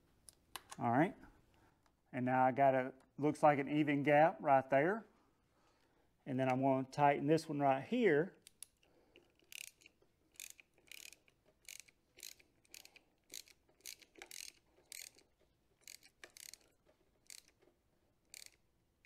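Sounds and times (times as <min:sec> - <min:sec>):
ratchet clicking: 0:08.4 - 0:17.6, 0:18.3 - 0:18.6.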